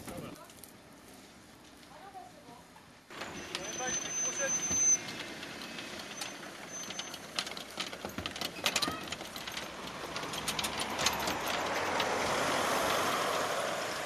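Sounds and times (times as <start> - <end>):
road vehicle passing: 0.0 - 14.0
sharp clicks and knocks: 4.6 - 13.4.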